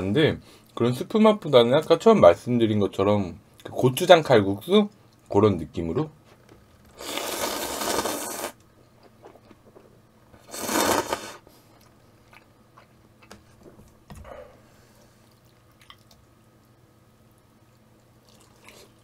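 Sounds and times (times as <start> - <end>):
noodles slurped loudly: 7.0 - 8.6, 10.4 - 11.4
chewing with small clicks: 11.7 - 13.4, 15.0 - 16.7, 17.7 - 19.0.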